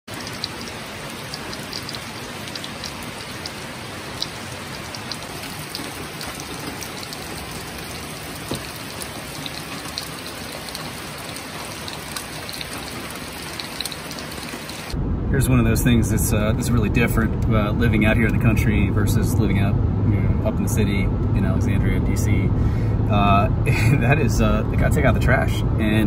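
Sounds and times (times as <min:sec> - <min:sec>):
rain on foliage: 0:00.1 - 0:15.0
water drops ticking: 0:00.1 - 0:15.0.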